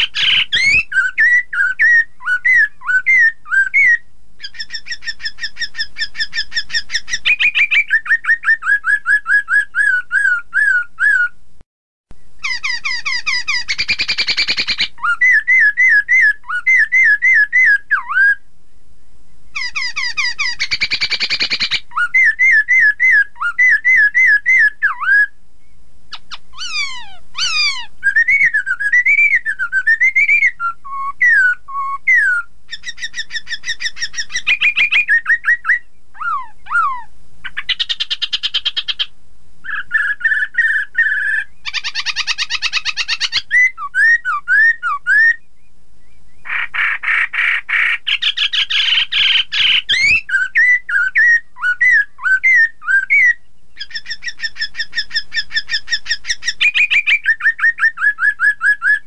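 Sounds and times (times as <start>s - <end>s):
bird fast chattering notes: 0.0s - 1.4s, 26.1s - 29.4s
bird whistling phrases: 0.0s - 11.4s, 12.4s - 18.4s, 19.5s - 25.4s, 26.1s - 59.0s.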